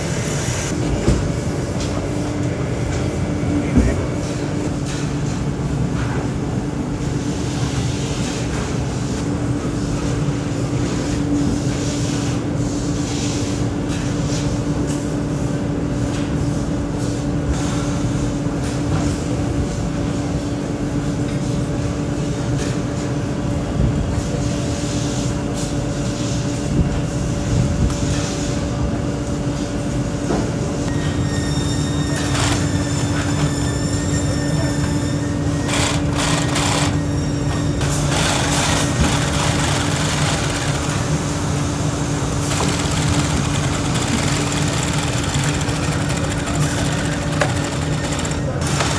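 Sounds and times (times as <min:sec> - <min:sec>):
steady machine hum: 0:00.0 - 0:11.9, 0:28.6 - 0:48.9.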